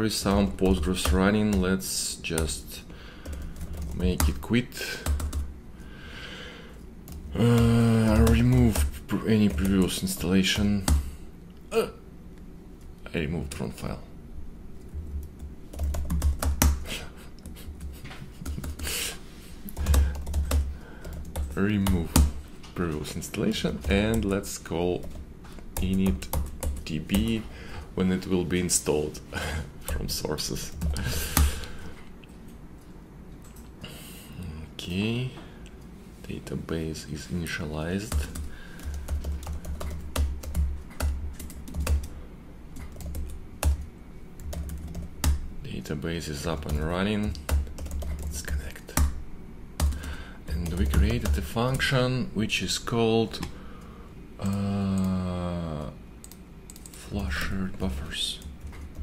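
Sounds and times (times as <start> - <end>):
keyboard typing: 5.0 - 5.5, 7.1 - 11.0, 15.2 - 16.8, 19.7 - 22.4, 25.8 - 27.4, 38.1 - 42.1, 42.8 - 45.4, 46.6 - 49.2, 49.8 - 51.5, 56.2 - 57.0
short breath: 5.8 - 6.8.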